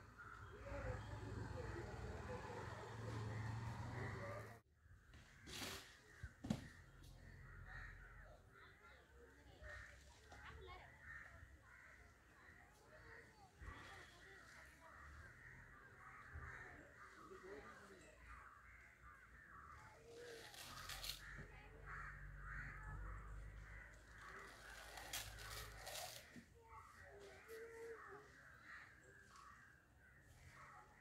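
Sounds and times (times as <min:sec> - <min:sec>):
crows cawing: 0:00.1 - 0:09.0, 0:09.6 - 0:31.0.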